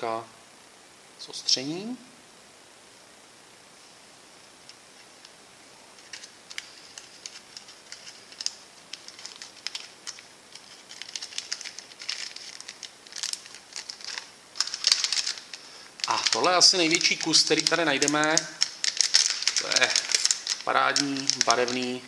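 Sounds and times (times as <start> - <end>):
plastic packaging crinkling: 5.9 - 22.0
rummaging through plastic bags: 6.0 - 22.0.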